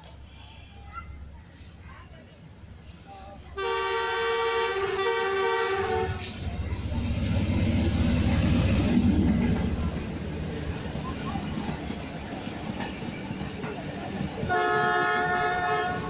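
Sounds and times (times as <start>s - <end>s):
locomotive engine rumble: 0.0s - 16.0s
train wheels rumbling: 0.0s - 16.0s
locomotive horn: 3.6s - 6.4s, 14.4s - 16.0s.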